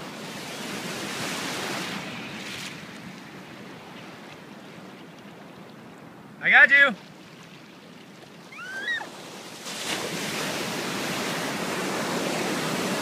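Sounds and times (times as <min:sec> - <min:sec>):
wave breaking and surf rushing: 0:00.0 - 0:04.9, 0:08.4 - 0:13.0
water lapping: 0:06.9 - 0:13.0
short rising cry: 0:08.5 - 0:09.1.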